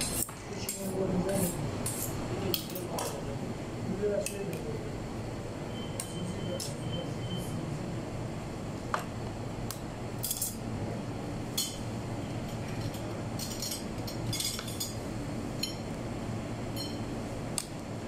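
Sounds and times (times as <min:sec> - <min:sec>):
low kitchen hum: 0:00.0 - 0:18.0
metal skewer clinking and scraping: 0:12.7 - 0:15.0.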